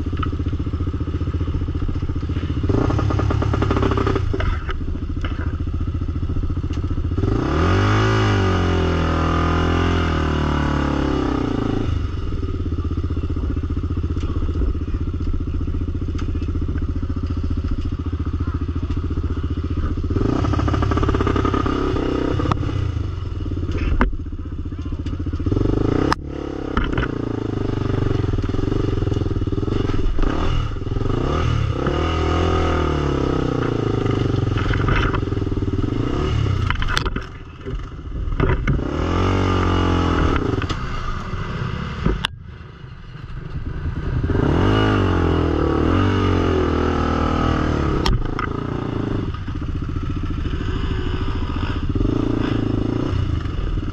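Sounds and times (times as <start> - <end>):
atv engine revving: 0.0 - 53.9.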